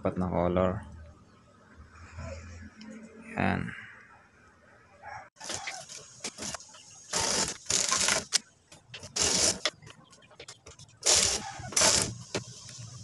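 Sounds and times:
knitting machine carriage strokes: 0:05.4 - 0:13.0.

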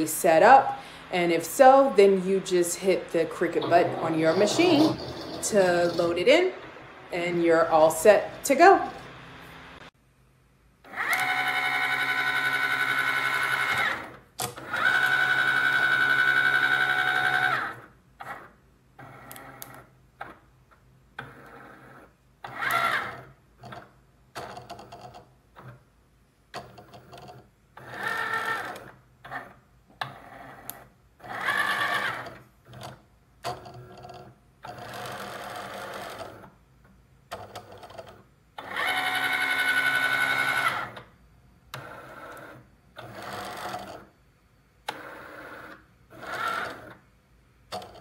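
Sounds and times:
cutting machine motors whining: 0:00.0 - 0:09.9.

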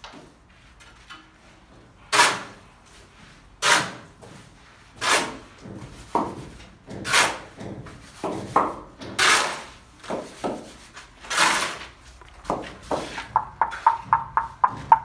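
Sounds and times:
sharp knocks: 0:12.5 - 0:15.0.

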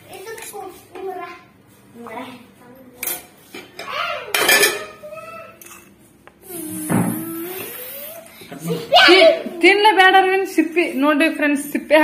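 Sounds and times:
metal plates and bowls clattering: 0:03.8 - 0:05.0.

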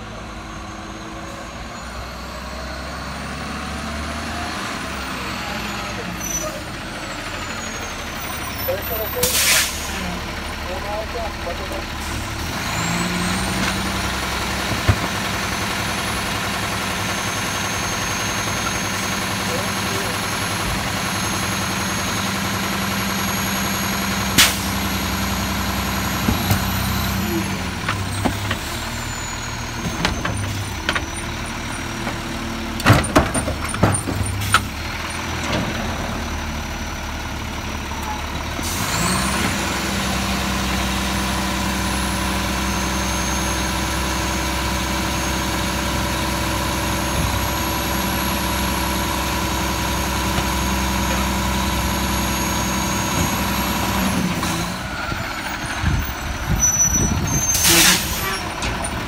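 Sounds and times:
garbage truck running: 0:00.0 - 0:59.0
hydraulic packer clanks and knocks: 0:32.0 - 0:34.8.

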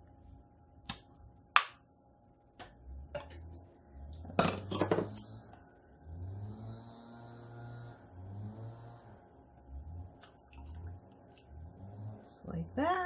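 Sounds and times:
kitchenware knocking and rattling: 0:04.3 - 0:05.2.

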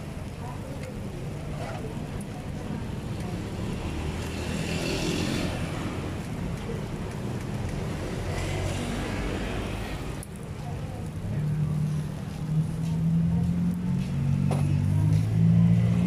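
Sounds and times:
street traffic noise: 0:00.0 - 0:16.0
vehicle passing: 0:03.0 - 0:07.1, 0:11.0 - 0:16.0.

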